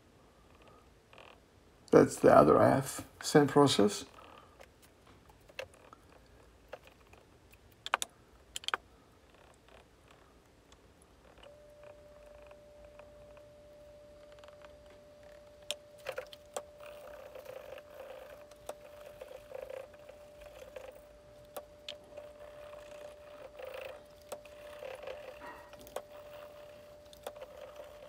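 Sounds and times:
faint steady hum: 0:00.0 - 0:28.0
cloth rubbing ceramic: 0:22.0 - 0:28.0.

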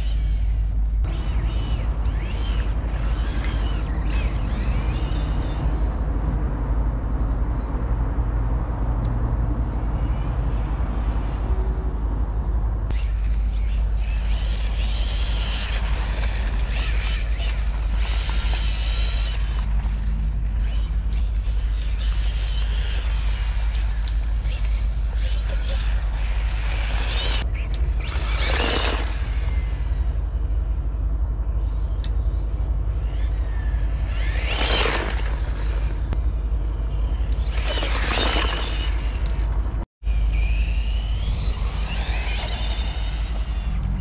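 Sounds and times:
electric motor whining: 0:12.9 - 0:29.8.

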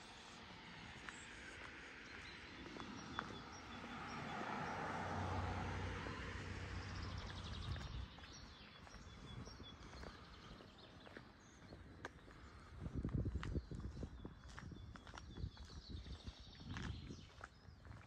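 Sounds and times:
small birds chirping: 0:00.0 - 0:04.8, 0:06.7 - 0:18.0
car passing: 0:00.0 - 0:10.4.

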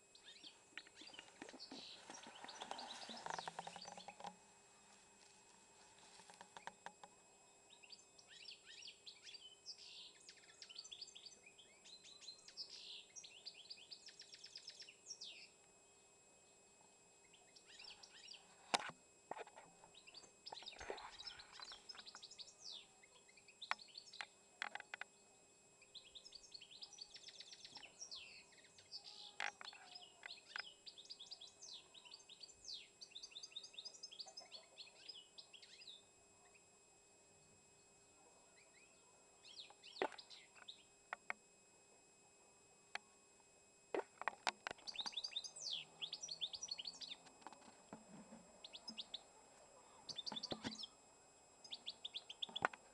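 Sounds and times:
songbird chirping and trilling: 0:00.0 - 0:05.3, 0:05.9 - 0:16.6, 0:17.2 - 0:36.7, 0:37.4 - 0:41.4, 0:44.0 - 0:52.9.

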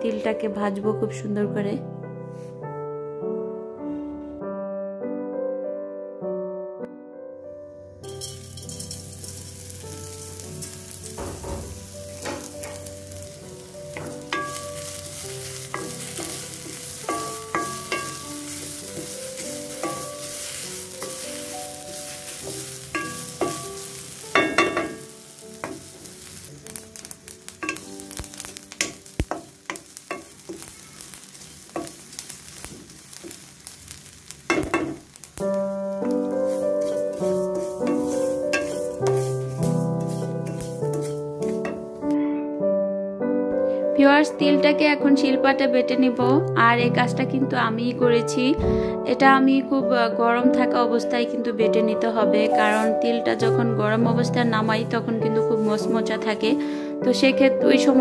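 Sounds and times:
seeds sizzling in a wok: 0:08.0 - 0:42.2, 0:52.0 - 0:58.0
wooden spatula scraping a wok: 0:08.2 - 0:26.4, 0:27.0 - 0:42.1, 0:52.4 - 0:53.1, 0:55.5 - 0:56.2
seeds clicking: 0:25.4 - 0:41.7.

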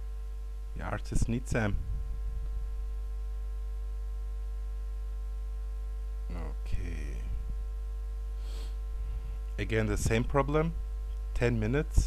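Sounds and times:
low electrical hum: 0:00.0 - 0:12.0
man murmuring: 0:06.3 - 0:07.4.

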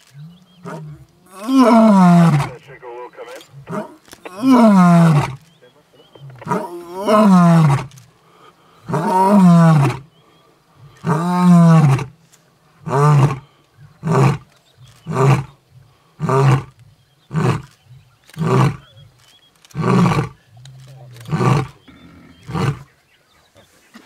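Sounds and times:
lion grunting calls: 0:00.1 - 0:08.0, 0:12.8 - 0:22.9
lion roaring: 0:00.2 - 0:02.6, 0:03.4 - 0:05.5, 0:06.1 - 0:08.0, 0:08.8 - 0:10.0, 0:10.8 - 0:12.1, 0:12.8 - 0:18.9, 0:19.7 - 0:22.9.

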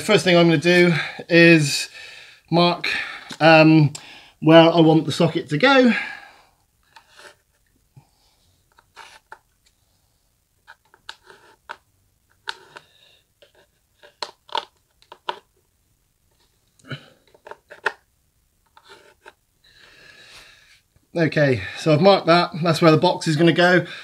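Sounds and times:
pencil scratching on wall: 0:11.1 - 0:11.7.

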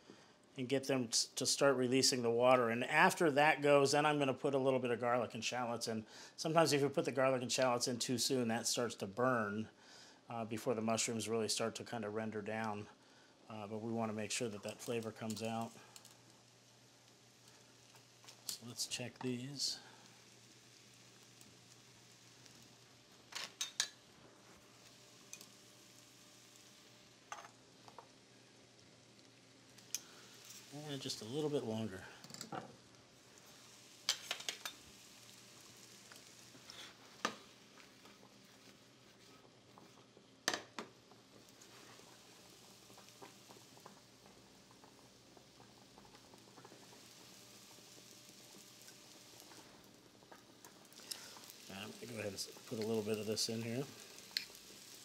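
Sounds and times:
mushrooms sizzling in a pan: 0:01.1 - 0:55.0
metal tongs clinking on pot: 0:23.5 - 0:24.0.

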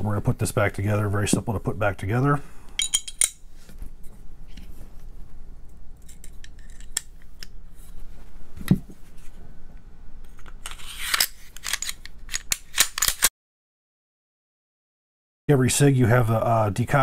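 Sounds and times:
pistol parts clicking and scraping: 0:02.8 - 0:03.4, 0:06.0 - 0:07.6, 0:10.2 - 0:13.3.

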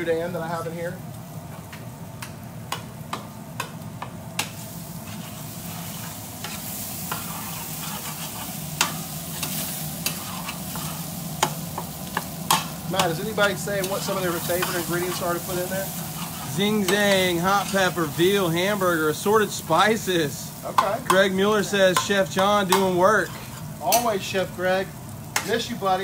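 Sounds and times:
bacon and sausage sizzling: 0:00.0 - 0:26.0
metal utensil scraping pan: 0:05.0 - 0:11.1, 0:13.8 - 0:18.0, 0:22.7 - 0:24.1.

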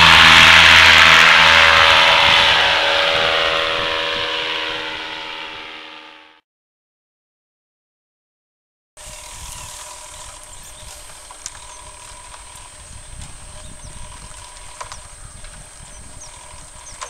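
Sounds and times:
wind rumbling on microphone: 0:00.0 - 0:05.6, 0:09.0 - 0:17.0
distant paramotor engine drone: 0:00.0 - 0:06.4, 0:09.0 - 0:17.0.

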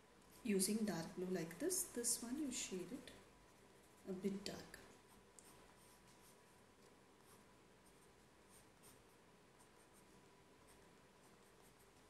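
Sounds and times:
pencil scratching on paper: 0:04.8 - 0:06.6, 0:07.2 - 0:12.0.

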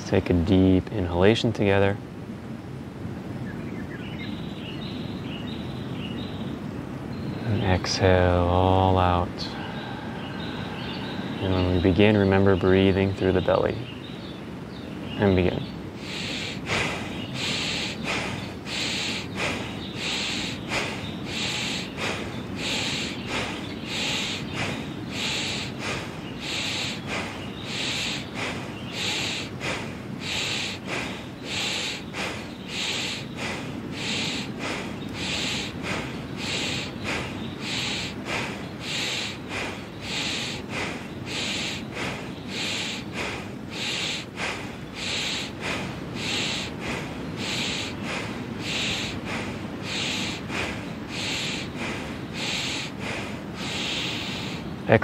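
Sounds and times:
rapid forceful nose breathing: 0:15.6 - 0:54.9.

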